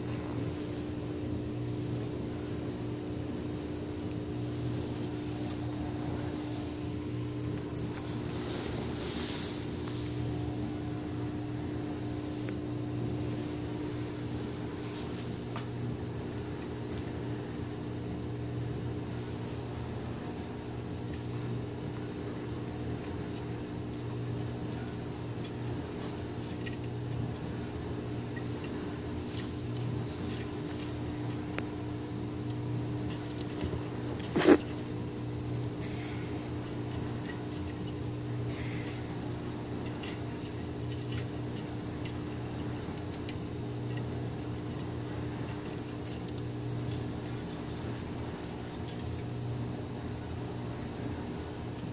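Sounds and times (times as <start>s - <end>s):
appliance humming: 0.0s - 51.9s
kitten scratching wooden legs: 28.2s - 31.6s, 35.7s - 49.4s.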